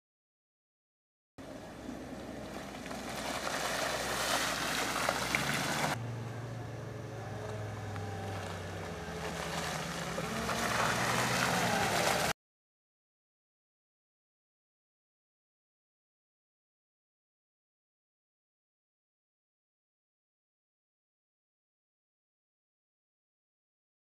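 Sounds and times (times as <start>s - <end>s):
engine pulling through mud: 1.4s - 12.4s
engine revving: 1.5s - 12.4s.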